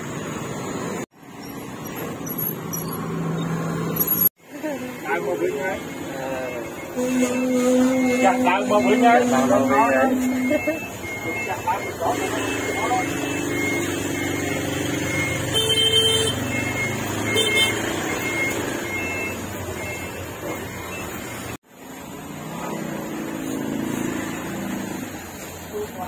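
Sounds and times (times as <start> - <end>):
road traffic passing: 0.0 - 26.0
vehicle horn honking: 6.3 - 10.6, 15.4 - 16.6, 17.3 - 18.1.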